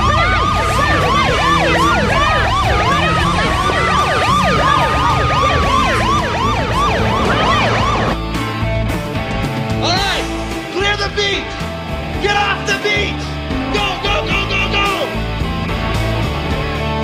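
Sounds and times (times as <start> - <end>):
police sirens yelping and wailing: 0.0 - 8.3.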